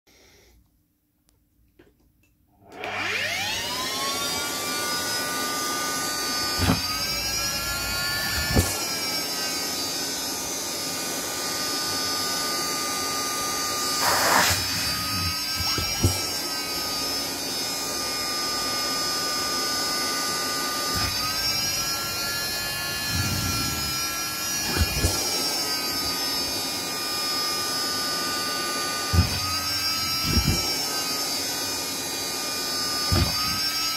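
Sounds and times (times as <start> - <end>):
vacuum cleaner motor whine: 2.6 - 33.9
hose nozzle sucking cloth: 6.4 - 9.5, 13.7 - 17.2, 20.8 - 26.9, 28.5 - 33.9.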